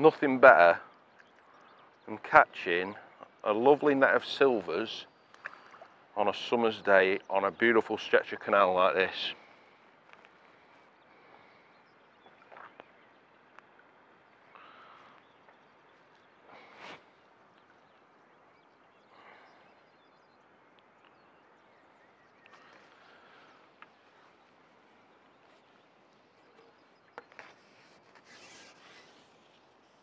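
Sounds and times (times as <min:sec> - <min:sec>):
faint outdoor ambience: 0:00.0 - 0:30.0
short rustle: 0:27.3 - 0:29.9.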